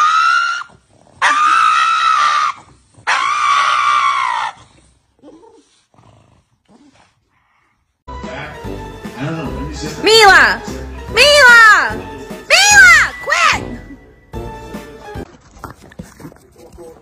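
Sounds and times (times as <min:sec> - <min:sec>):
dog screaming: 0:00.0 - 0:04.8, 0:12.5 - 0:13.6.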